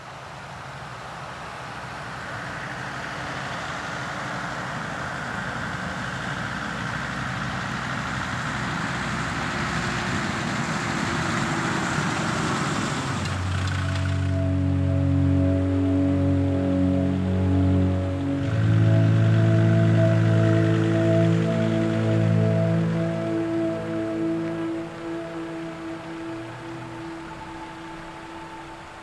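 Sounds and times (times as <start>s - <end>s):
vehicle engine approaching: 1.6s - 29.0s
steady music tones: 12.0s - 29.0s.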